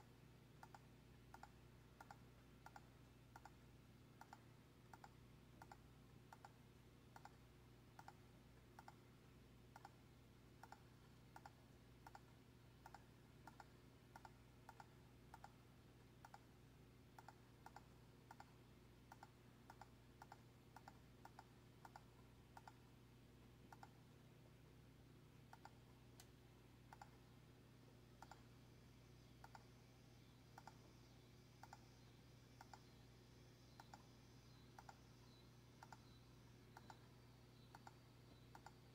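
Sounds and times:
low steady hum: 0:00.0 - 0:38.9
faint computer clicks: 0:00.6 - 0:03.6, 0:04.2 - 0:09.0, 0:09.7 - 0:10.0, 0:10.6 - 0:15.6, 0:16.2 - 0:16.5, 0:17.2 - 0:22.9, 0:23.7 - 0:24.0, 0:25.5 - 0:27.3, 0:28.2 - 0:28.5, 0:29.4 - 0:29.8, 0:30.5 - 0:30.9, 0:31.6 - 0:33.0, 0:33.6 - 0:38.9.

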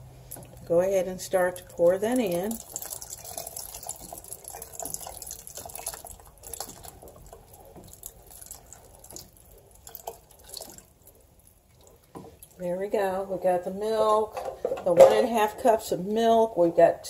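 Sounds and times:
bubbling broth: 0:00.0 - 0:13.1
milk pouring and splashing: 0:00.1 - 0:12.6.

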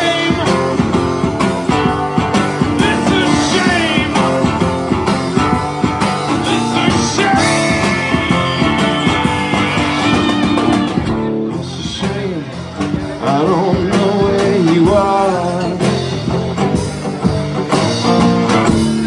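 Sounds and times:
drums and cymbals: 0:00.0 - 0:19.0
strummed acoustic guitar: 0:00.0 - 0:19.0
man singing wordless note: 0:02.8 - 0:04.6, 0:06.4 - 0:10.0.

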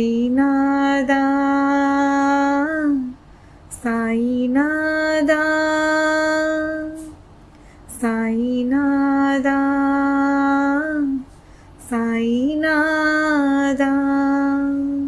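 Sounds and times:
woman singing sustained notes: 0:00.0 - 0:07.1, 0:07.9 - 0:15.0
woman breathing: 0:03.2 - 0:03.7, 0:07.5 - 0:07.9, 0:11.2 - 0:11.8.

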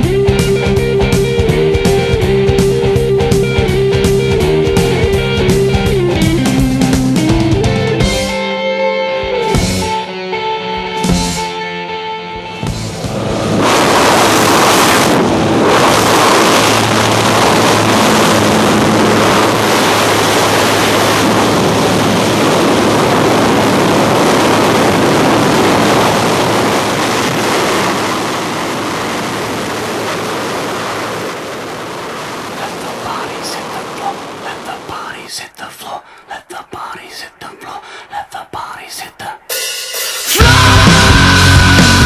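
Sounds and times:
aircraft engine and propeller drone: 0:00.0 - 0:08.2, 0:10.9 - 0:34.8
wind buffeting microphone: 0:12.9 - 0:34.9.

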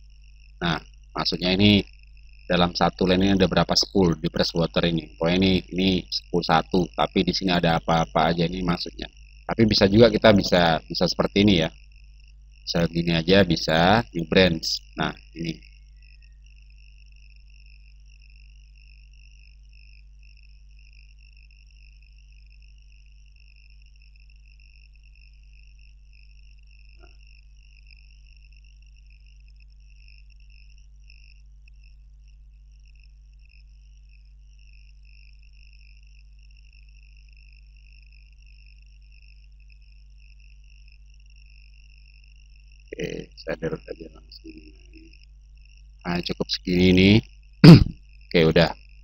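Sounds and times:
low hum: 0:02.5 - 0:11.7, 0:43.0 - 0:45.1.

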